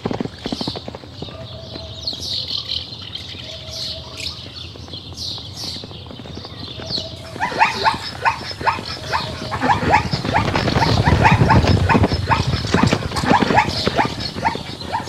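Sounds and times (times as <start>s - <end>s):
hooves galloping on dirt: 0.0s - 15.0s
zebras barking: 7.0s - 15.0s.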